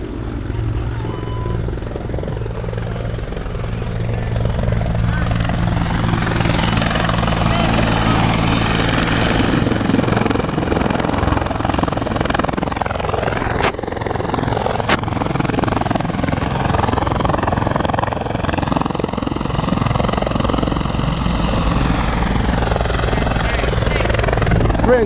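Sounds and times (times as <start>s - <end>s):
helicopter rotors chopping: 0.0s - 25.0s.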